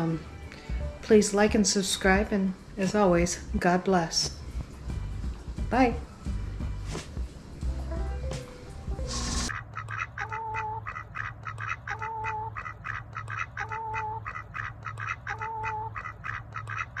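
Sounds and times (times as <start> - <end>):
ducks quacking: 9.5 - 17.0.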